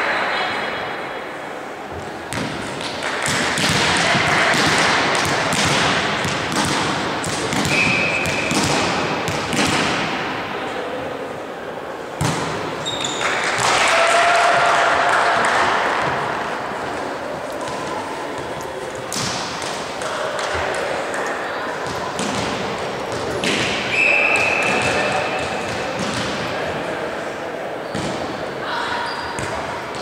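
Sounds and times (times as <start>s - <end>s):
players' voices: 0.0s - 30.0s
volleyball hits and thuds: 2.3s - 10.4s, 12.2s - 12.7s, 13.5s - 13.9s, 19.1s - 20.7s, 21.8s - 26.6s, 27.9s - 28.3s.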